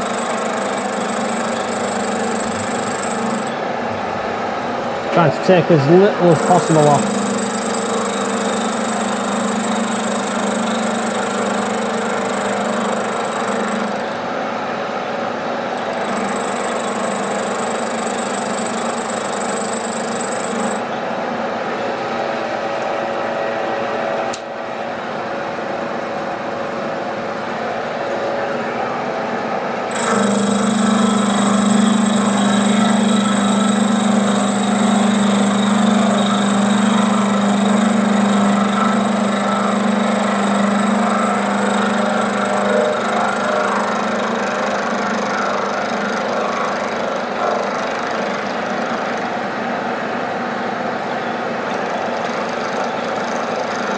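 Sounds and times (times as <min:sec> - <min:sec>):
milling machine cutting metal: 0:00.0 - 0:03.6, 0:05.2 - 0:14.1, 0:29.9 - 0:49.2.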